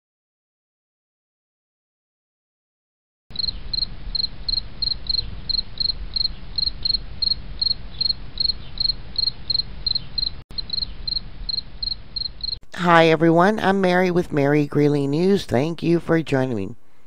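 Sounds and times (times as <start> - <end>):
cricket chirping: 3.3 - 12.6.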